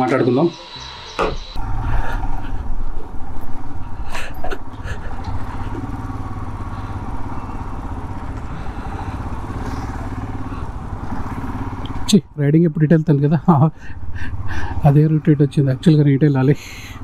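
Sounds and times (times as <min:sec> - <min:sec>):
motorcycle engine running: 0:00.1 - 0:12.3.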